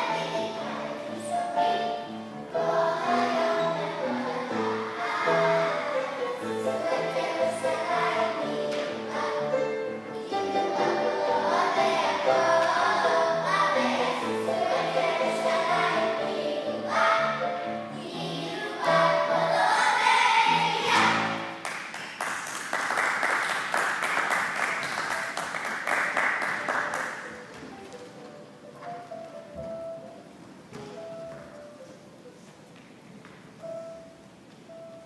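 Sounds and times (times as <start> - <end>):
children singing with music: 0.0 - 21.6
applause: 21.6 - 27.4.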